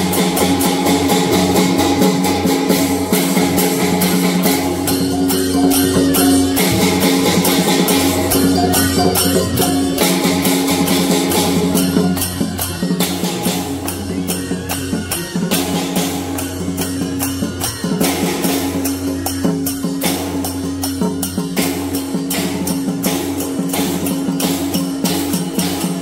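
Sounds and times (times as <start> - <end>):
suona reedy notes: 0.0 - 20.4
cymbal clashes: 0.0 - 26.0
gongs: 0.0 - 26.0
large drum: 0.0 - 26.0.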